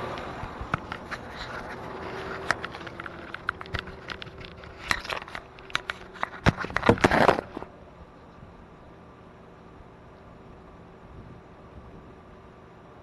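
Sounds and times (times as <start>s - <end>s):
engine idling hum: 0.0s - 13.0s
camera handling clicks and rustles: 0.7s - 7.7s.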